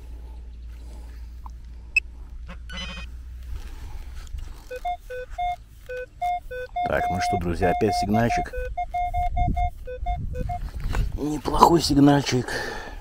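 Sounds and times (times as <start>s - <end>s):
metal detector beeps: 2.7s - 3.1s, 4.7s - 10.7s.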